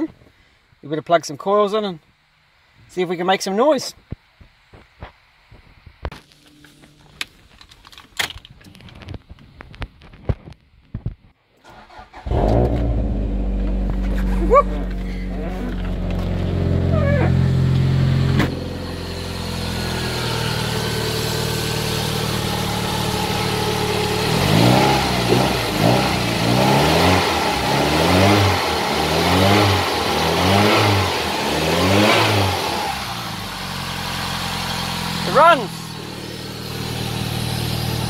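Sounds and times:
turbocharged engine idling and revving: 11.8s - 38.0s.

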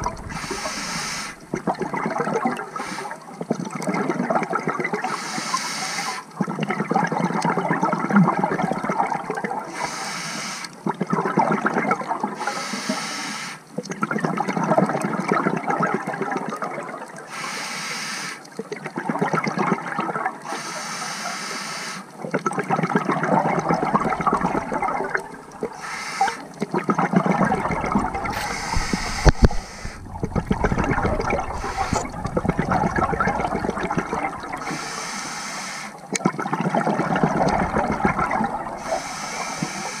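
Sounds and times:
bubbling exhaust: 0.0s - 2.5s, 22.8s - 25.8s, 26.6s - 34.8s, 36.2s - 40.0s
regulator hiss on inhale: 0.2s - 1.4s, 2.7s - 3.2s, 5.1s - 6.3s, 9.7s - 10.8s, 12.4s - 13.6s, 17.3s - 18.4s, 20.5s - 22.1s, 25.7s - 26.5s, 28.3s - 30.0s, 31.4s - 32.1s, 34.6s - 36.0s, 38.8s - 40.0s.

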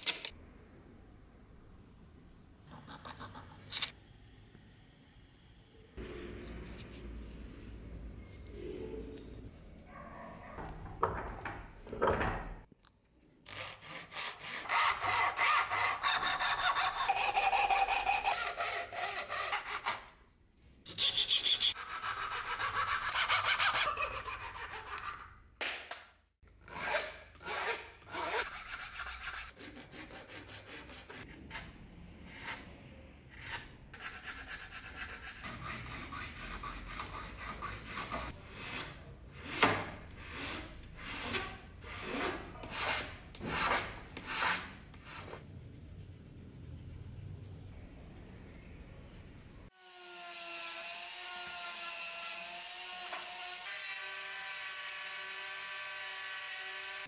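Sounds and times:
hand saw rasping through wood: 13.5s - 20.0s, 21.1s - 25.2s.

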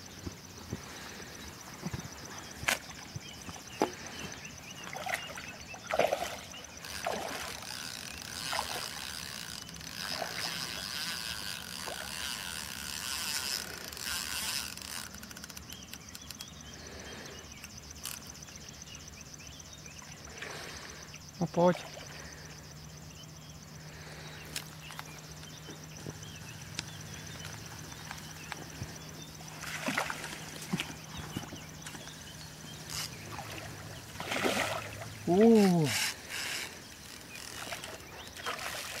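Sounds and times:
fish splashing in water: 4.8s - 12.1s, 29.5s - 32.0s, 32.8s - 36.3s, 37.6s - 39.0s
sharp clicks: 12.6s - 16.6s.

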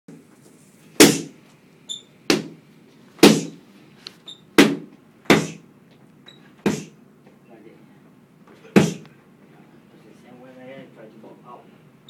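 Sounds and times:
punches smacking focus mitts: 1.0s - 1.3s, 3.2s - 3.6s, 4.6s - 5.6s, 8.8s - 9.0s
high squeaks: 1.9s - 2.1s, 4.2s - 4.5s.

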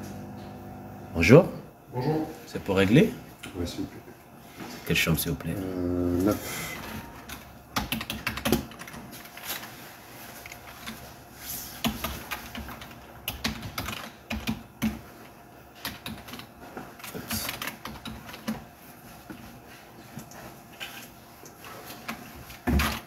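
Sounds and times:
typing on keyboard: 7.2s - 9.0s, 11.8s - 15.0s, 15.8s - 18.6s.

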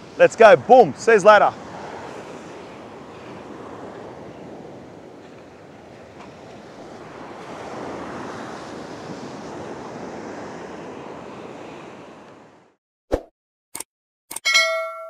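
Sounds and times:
waves breaking on beach: 0.0s - 12.8s
wind on microphone: 1.6s - 12.6s.

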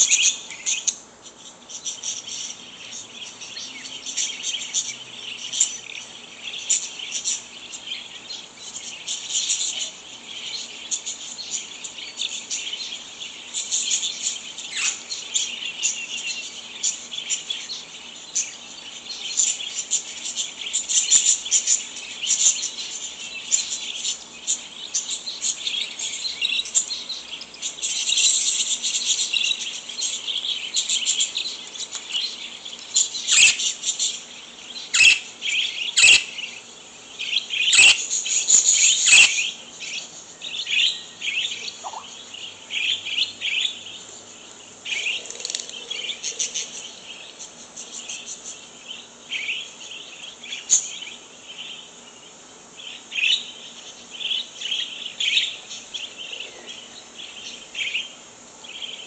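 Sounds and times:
recorded budgie flock calls: 0.0s - 59.0s
budgie chirping and chattering: 1.8s - 36.6s, 37.2s - 40.0s, 40.6s - 43.9s.

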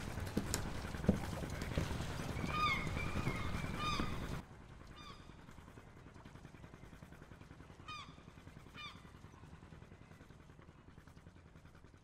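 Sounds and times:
low steady rumble: 0.0s - 12.0s
faint honking bird calls: 2.3s - 5.3s.

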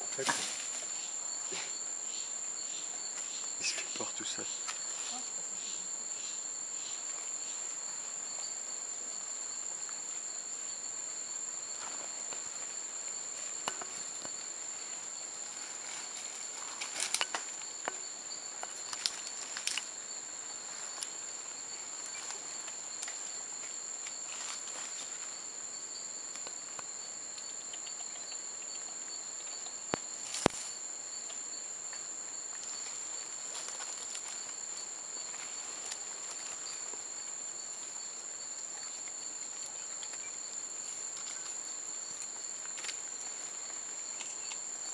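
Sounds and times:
insects droning: 0.0s - 44.9s
dry leaves crackling and snapping: 16.0s - 17.5s, 18.8s - 19.9s.

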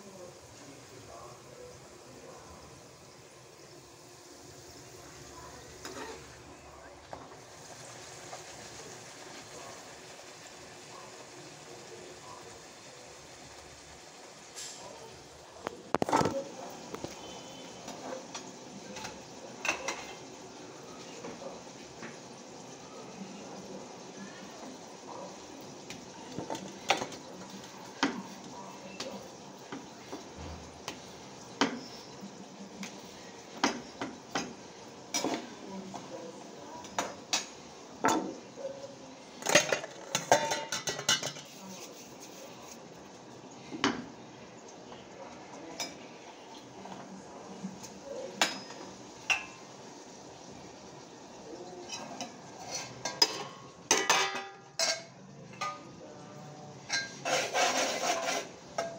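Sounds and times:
metal pots and utensils clinking: 5.8s - 6.4s, 15.9s - 20.4s, 24.5s - 32.1s, 32.8s - 36.1s, 36.8s - 38.5s, 39.3s - 42.8s, 45.8s - 46.0s, 47.8s - 49.7s, 51.7s - 56.0s, 56.8s - 58.9s.

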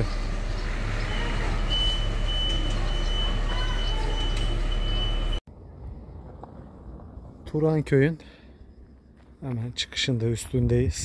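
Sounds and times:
vehicle engine humming: 0.0s - 7.4s.

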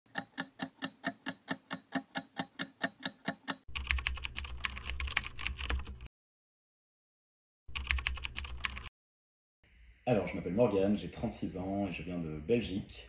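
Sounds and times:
keyboard typing: 0.1s - 6.1s, 7.7s - 8.9s.

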